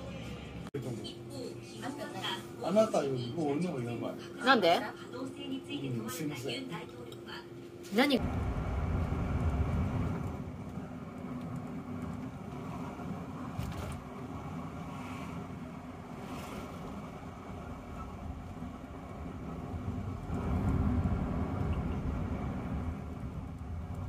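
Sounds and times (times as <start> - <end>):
car road and engine rumble: 8.2 - 24.0.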